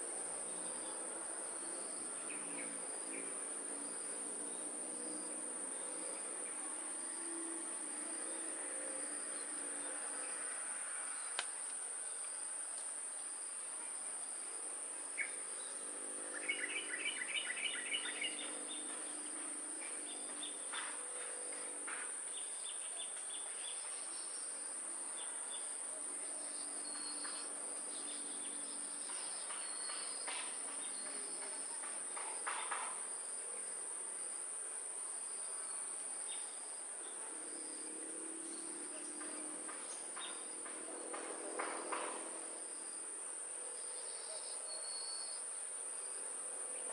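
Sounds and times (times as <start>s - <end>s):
high-pitched insect chorus: 0.0s - 46.9s
birds chirping: 15.1s - 20.9s.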